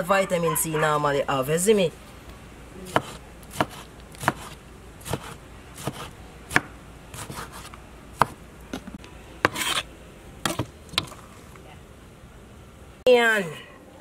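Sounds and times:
knife scraping board: 0:02.9 - 0:06.1, 0:07.1 - 0:08.3, 0:09.4 - 0:09.9
knife chopping on wooden board: 0:02.9 - 0:08.4, 0:09.4 - 0:09.8, 0:10.4 - 0:11.1.

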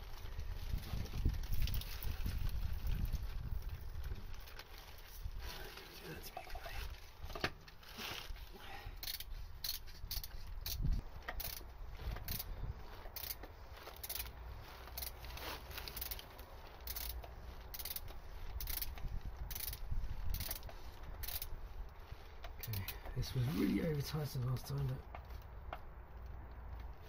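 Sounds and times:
hand ratchet clicking: 0:09.0 - 0:15.2, 0:15.8 - 0:21.6.

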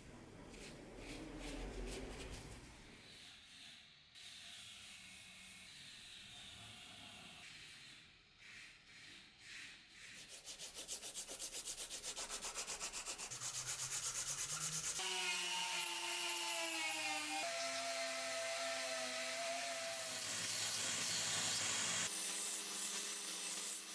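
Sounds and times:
sandpaper rubbing on wood: 0:08.5 - 0:17.4, 0:18.4 - 0:23.9
small power tool whining: 0:15.0 - 0:23.9.

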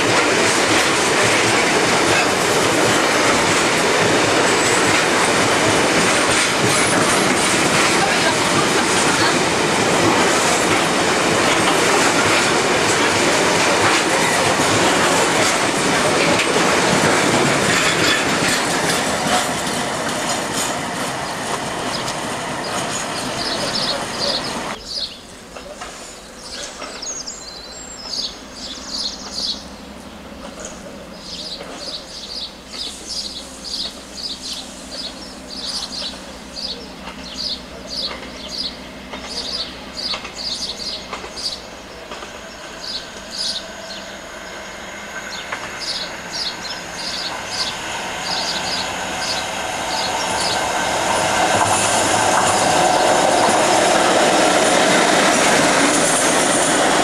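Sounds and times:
freight wagons clattering over rails: 0:00.0 - 0:29.5, 0:30.4 - 0:44.1, 0:44.7 - 0:57.0
diesel locomotive droning: 0:00.0 - 0:57.0.

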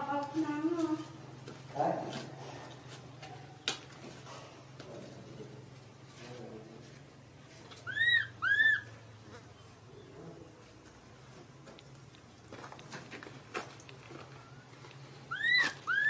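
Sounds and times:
infant monkey crying: 0:07.8 - 0:08.9, 0:15.3 - 0:16.0.

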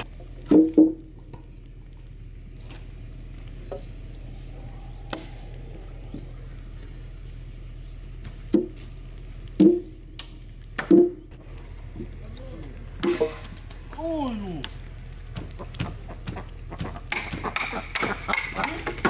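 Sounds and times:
high buzz of insects: 0:00.0 - 0:19.0
hollow knocks of wooden timber: 0:08.2 - 0:08.8, 0:15.3 - 0:19.0.

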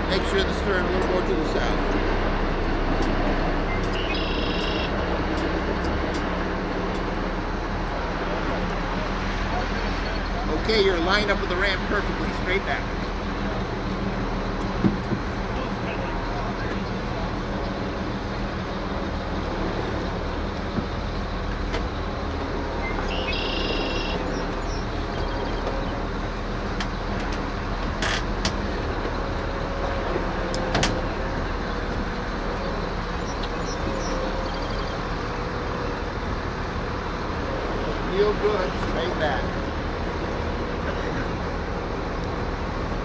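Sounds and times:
vehicle engine humming: 0:00.0 - 0:43.0.

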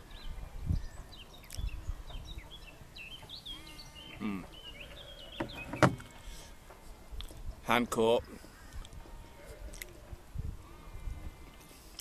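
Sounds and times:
wind rumble on microphone: 0:00.0 - 0:02.7, 0:08.6 - 0:11.6
songbirds chirping: 0:00.0 - 0:12.0.

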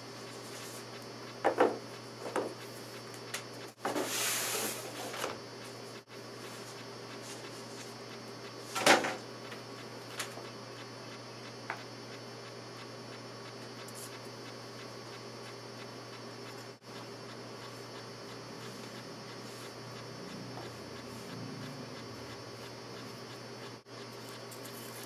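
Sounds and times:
steady hiss: 0:03.8 - 0:05.2
faint ticks: 0:09.4 - 0:25.0.

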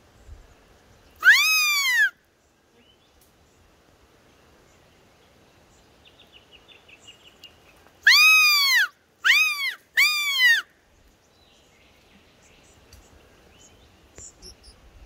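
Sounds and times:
squeaky deer call: 0:01.2 - 0:02.1, 0:08.1 - 0:10.6.

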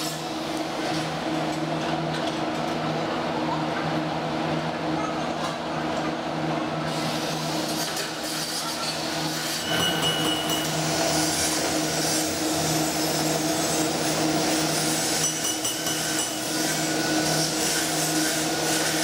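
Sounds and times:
low machine hum: 0:00.0 - 0:07.8.

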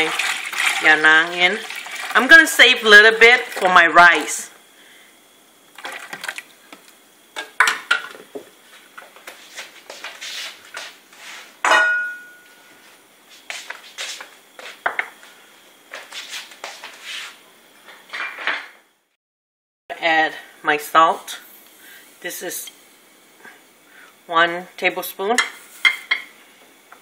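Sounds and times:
loud ringing metallic clink: 0:11.7 - 0:12.6.

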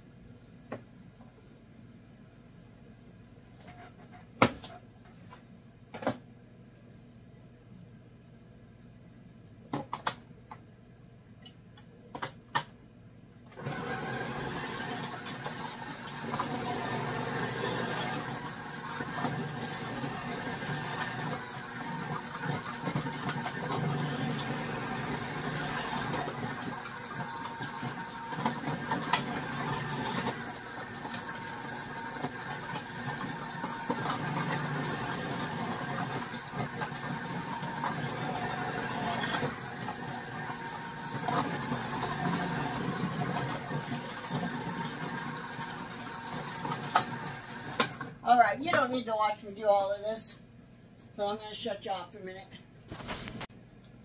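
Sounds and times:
food processor motor shredding: 0:13.5 - 0:48.2.

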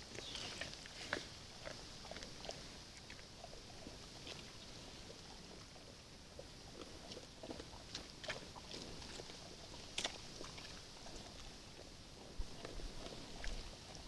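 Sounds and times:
bears chewing crunches: 0:00.0 - 0:04.5, 0:06.7 - 0:14.0.

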